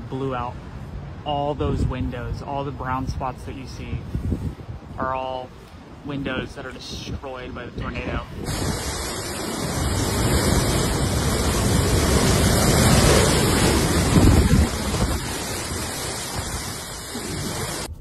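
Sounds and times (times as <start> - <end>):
storm wind on microphone: 0.0 - 18.0
driving rain: 7.8 - 18.0.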